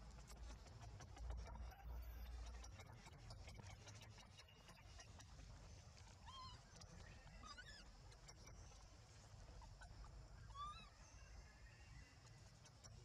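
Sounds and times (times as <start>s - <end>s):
baby monkey squeaks: 6.1s - 8.8s, 9.5s - 11.2s.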